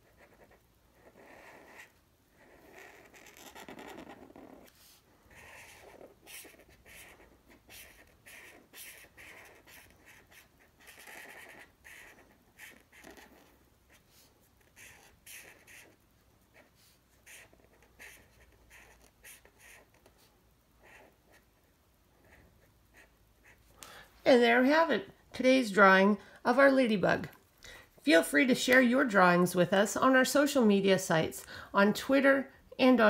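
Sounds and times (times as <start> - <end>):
marker scratching on paper: 0.0 - 23.8.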